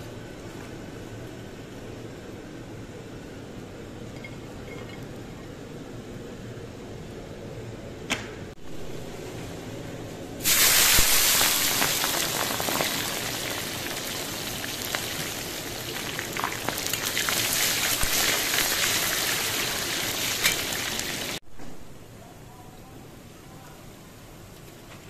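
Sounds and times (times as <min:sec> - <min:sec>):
onions sizzling in hot oil: 0:10.4 - 0:21.4.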